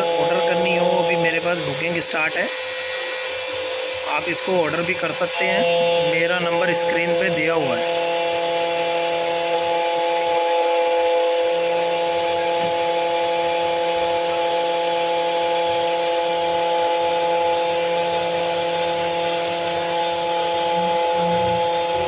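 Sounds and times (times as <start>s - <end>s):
person speaking: 0.0s - 2.6s, 4.0s - 7.9s
key cutting machine whine: 0.0s - 22.0s.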